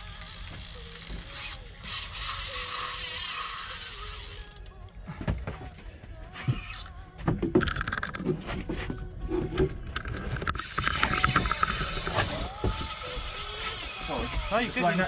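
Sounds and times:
fishing reel ratchet buzzing: 0:00.0 - 0:04.7, 0:10.6 - 0:15.0.

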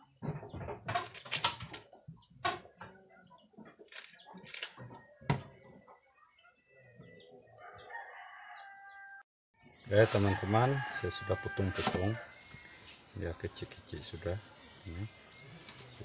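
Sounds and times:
chickens clucking: 0:01.8 - 0:08.0.

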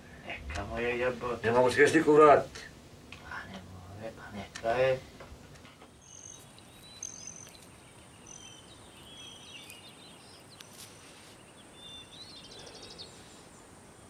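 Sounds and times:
insect drone: 0:05.9 - 0:14.0
birds chirping and whistling: 0:06.0 - 0:13.5.

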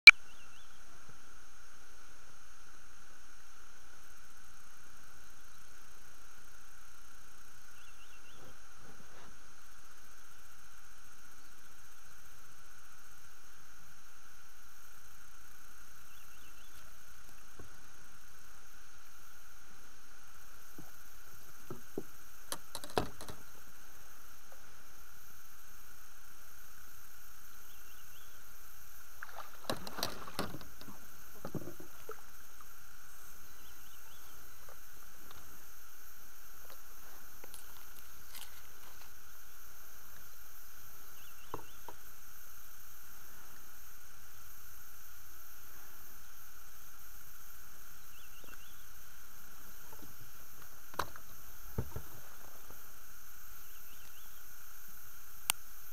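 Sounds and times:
background hiss: 0:00.0 - 0:55.9.

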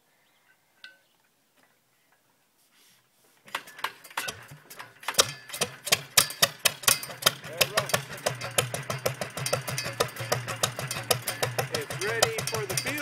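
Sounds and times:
small engine starting and running: 0:03.5 - 0:13.0.

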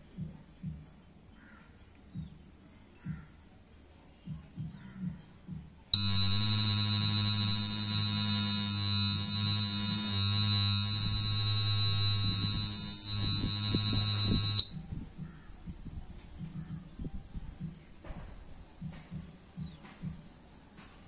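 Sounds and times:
piezo buzzer alarm tone: 0:06.0 - 0:14.8.

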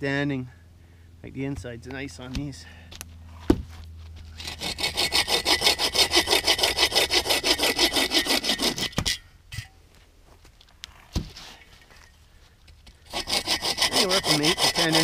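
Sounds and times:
bow saw cutting a branch: 0:04.3 - 0:09.2, 0:13.1 - 0:15.0.

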